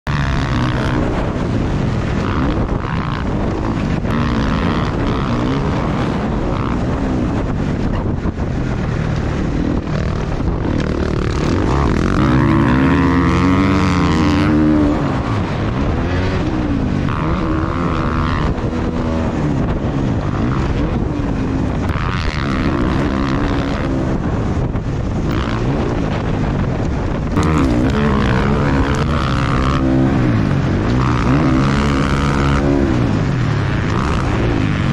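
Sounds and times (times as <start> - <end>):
dirt bike engine revving: 0.0 - 34.9
drone propellers whining: 0.0 - 34.9.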